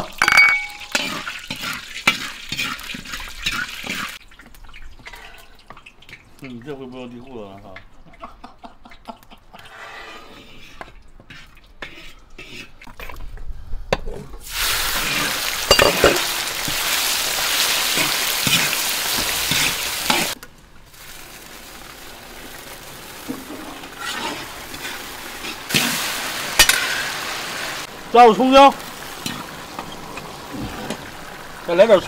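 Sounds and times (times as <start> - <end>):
meat sizzling in a wok: 0.0 - 4.2, 14.4 - 32.0
metal ladle scraping a pan: 0.2 - 4.2, 9.6 - 12.9, 23.2 - 26.0.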